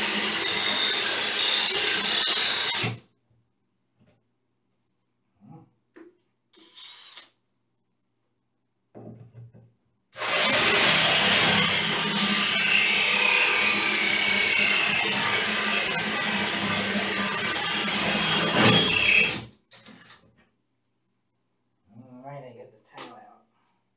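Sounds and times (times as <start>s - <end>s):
drill grinding into tile: 0.0s - 3.0s, 10.2s - 19.5s.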